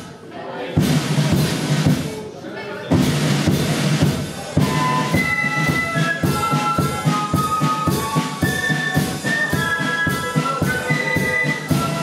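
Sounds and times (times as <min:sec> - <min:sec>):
side drum beat: 0:00.8 - 0:02.3, 0:02.9 - 0:12.0
massed flutes playing melody: 0:04.6 - 0:12.0.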